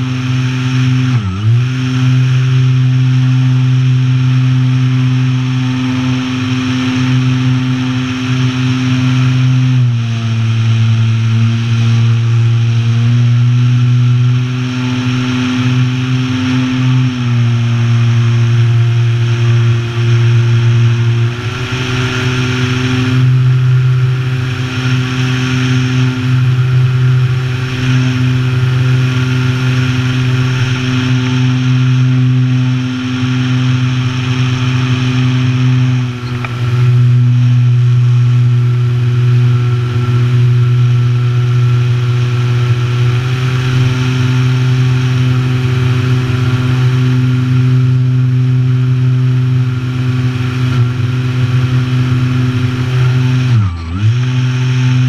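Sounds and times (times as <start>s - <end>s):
model airplane motor drone: 0.0s - 55.0s
rush of air: 18.9s - 38.2s.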